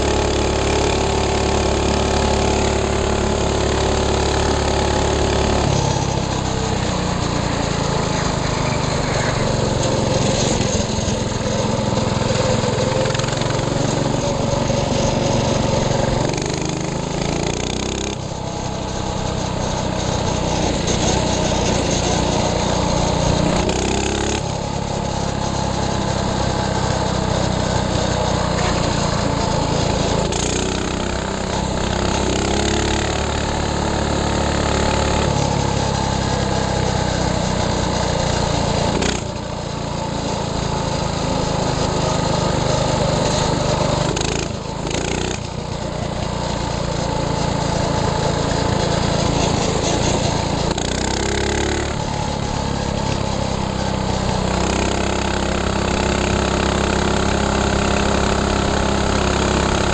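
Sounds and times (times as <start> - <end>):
minibike engine running: 0.0 - 59.9.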